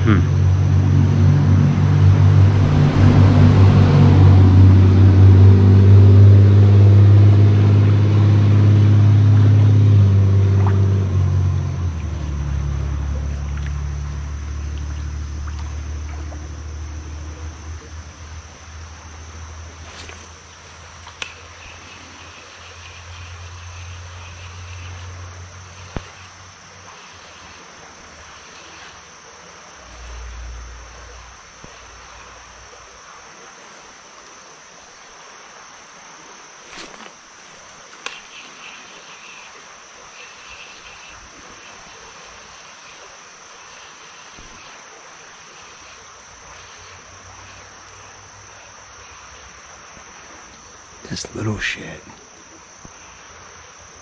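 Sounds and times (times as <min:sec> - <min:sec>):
vehicle engine running: 0:00.0 - 0:19.8.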